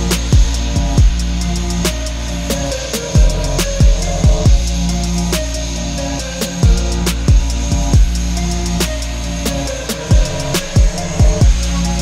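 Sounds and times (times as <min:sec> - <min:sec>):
hi-hat ticks: 0:00.0 - 0:12.0
deep kick drum hits: 0:00.3 - 0:01.2, 0:03.2 - 0:04.6, 0:06.6 - 0:08.2.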